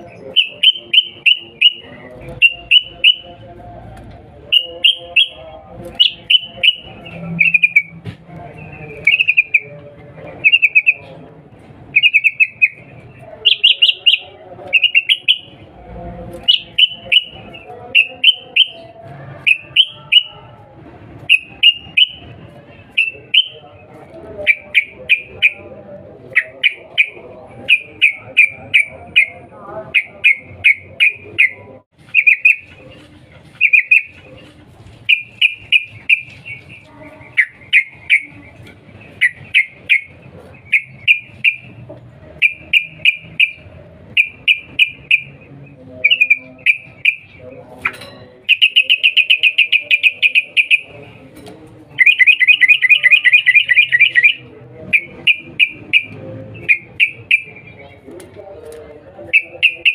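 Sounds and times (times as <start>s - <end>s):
bird chattering calls: 11.9s - 15.6s, 26.3s - 32.8s, 46.0s - 51.0s.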